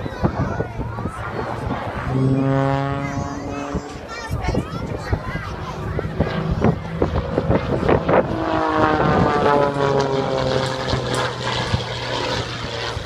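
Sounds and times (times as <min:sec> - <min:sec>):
propeller plane passing overhead: 0:00.0 - 0:13.0
wind buffeting microphone: 0:00.0 - 0:13.0.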